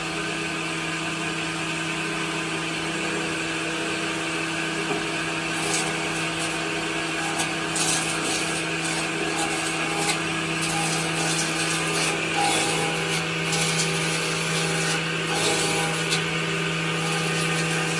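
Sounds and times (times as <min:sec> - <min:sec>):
table saw motor humming: 0:00.0 - 0:17.9
saw cutting wood hiss: 0:05.4 - 0:17.9.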